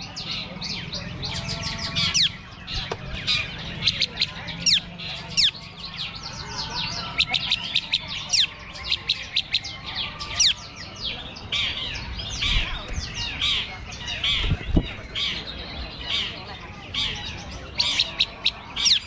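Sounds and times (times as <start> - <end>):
birds singing whistles and chirps: 0.0 - 19.0.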